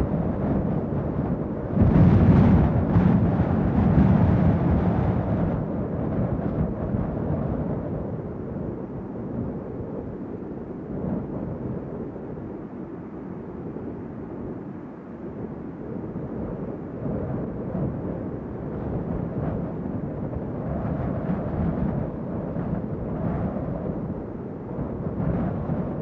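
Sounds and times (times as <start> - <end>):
strong wind gusts: 0.0 - 26.0.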